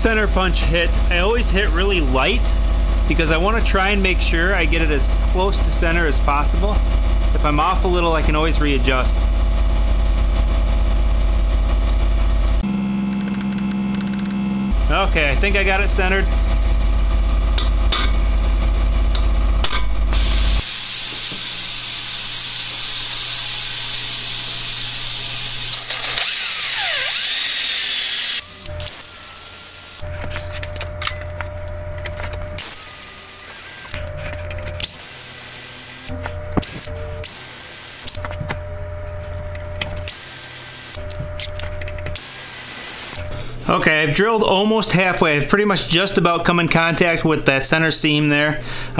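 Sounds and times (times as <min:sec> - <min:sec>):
loud low hum: 0:00.0 - 0:37.4
cordless drill boring into metal: 0:20.2 - 0:30.1, 0:32.6 - 0:34.1, 0:34.8 - 0:38.2, 0:40.0 - 0:41.5, 0:42.1 - 0:43.2.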